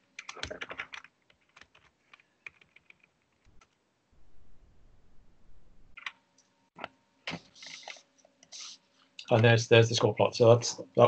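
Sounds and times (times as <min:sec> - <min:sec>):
low rumble: 0:04.2 - 0:06.0.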